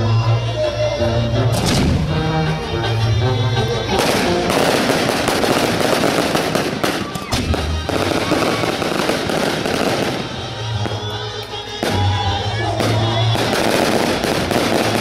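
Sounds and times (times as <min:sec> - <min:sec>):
fireworks crackling: 0:03.9 - 0:15.0
fireworks sharp bangs: 0:03.9 - 0:15.0.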